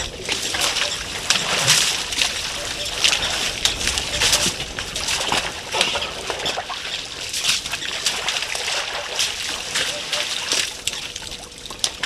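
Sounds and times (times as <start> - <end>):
mud and water squelching and splashing: 0.0 - 12.0.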